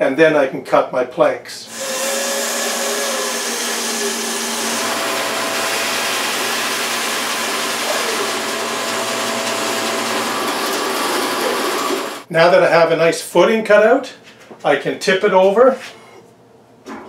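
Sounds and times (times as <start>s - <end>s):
bandsaw cutting log: 1.7s - 12.3s.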